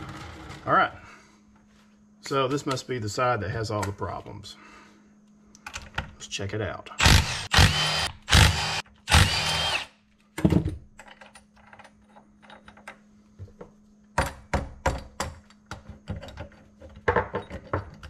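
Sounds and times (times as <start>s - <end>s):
impact gun whirring: 7.0s - 9.9s.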